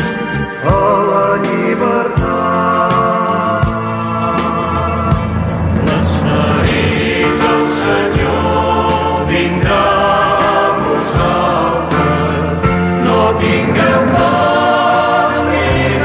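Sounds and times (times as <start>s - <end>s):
instrumental accompaniment: 0.0s - 16.0s
choir singing: 0.6s - 16.0s.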